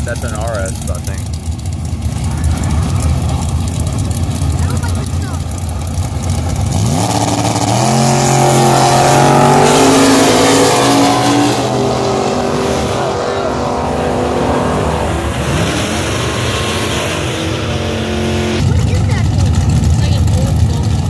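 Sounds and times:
drag racing car engines revving: 0:00.0 - 0:21.0.

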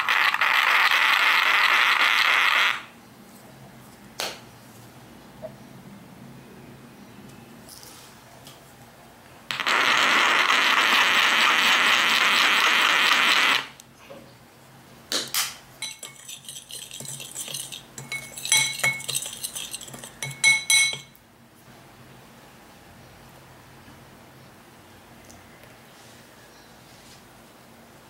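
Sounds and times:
metal spoon scraping ceramic bowl: 0:15.8 - 0:21.2
pepper grinder grinding: 0:15.8 - 0:21.2.

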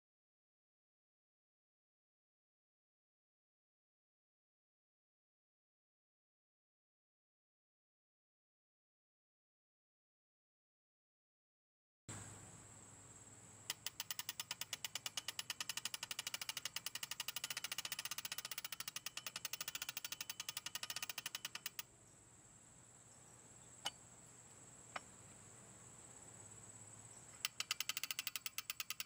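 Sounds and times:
clockwork fan ratchet clicking: 0:13.7 - 0:21.9, 0:27.4 - 0:29.0.

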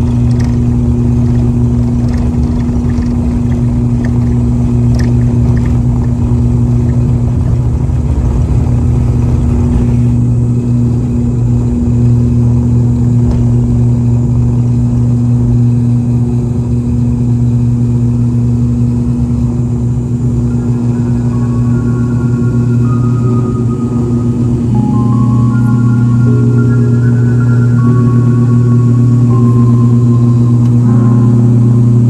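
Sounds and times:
turboprop engines droning: 0:00.0 - 0:32.0.

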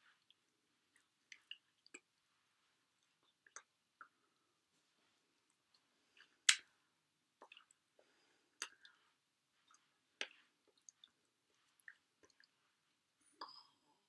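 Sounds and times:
soft hand clicks and smacks: 0:06.2 - 0:06.7.

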